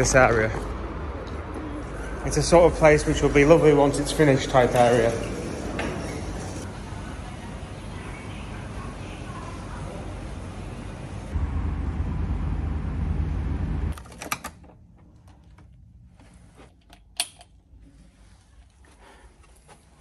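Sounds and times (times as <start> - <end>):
loud low rumble: 11.1 - 13.9.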